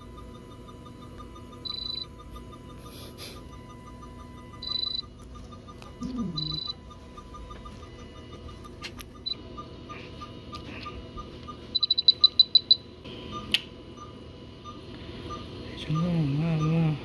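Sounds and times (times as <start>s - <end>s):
quieter evenly spaced beeps: 0.0s - 17.0s
short high-pitched beeps: 0.0s - 17.0s
sharp clicks: 13.4s - 13.7s.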